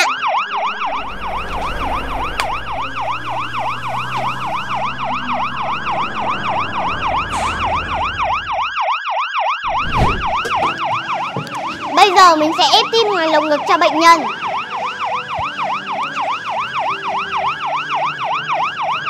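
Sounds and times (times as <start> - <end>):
ambulance siren yelping: 0.0 - 19.0
low rumble: 0.5 - 8.7, 9.7 - 10.6.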